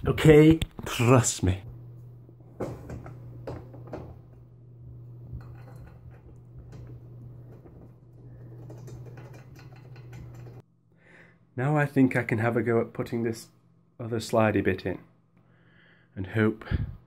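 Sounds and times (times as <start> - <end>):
steady low hum: 0.0 - 11.6
metal parts clinking and knocking: 5.4 - 10.6.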